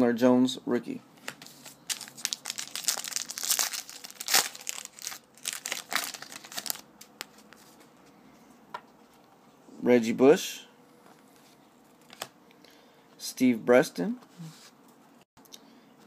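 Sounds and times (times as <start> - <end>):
card pack wrapper crinkling: 1.4 - 7.2.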